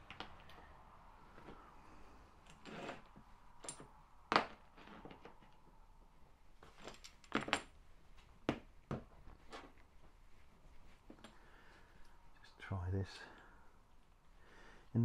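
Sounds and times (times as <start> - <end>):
metal parts clinking on a mat: 2.4 - 5.6, 6.6 - 7.8, 10.8 - 12.2.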